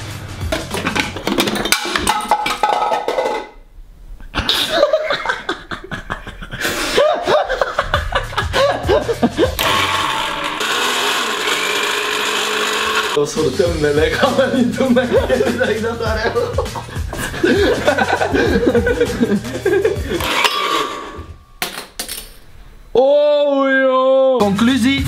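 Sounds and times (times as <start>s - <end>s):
laughter: 4.3s - 9.6s, 14.8s - 20.2s
electric blender whirring: 9.6s - 13.2s, 20.2s - 21.4s.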